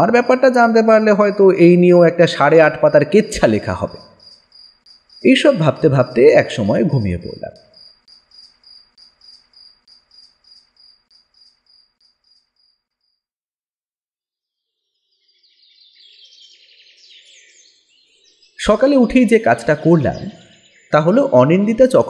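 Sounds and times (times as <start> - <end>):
birds chirping: 0.0 - 12.4, 14.9 - 22.0
faint cricket chirping: 0.0 - 13.2.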